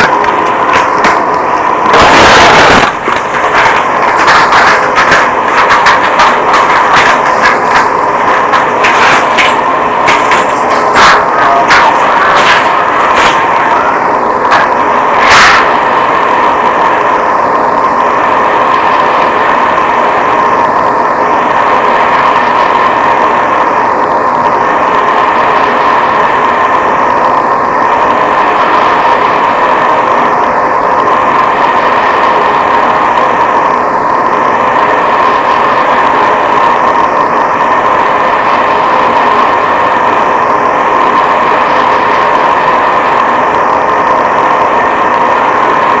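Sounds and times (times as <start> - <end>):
static-like hiss: 0.0 - 36.7.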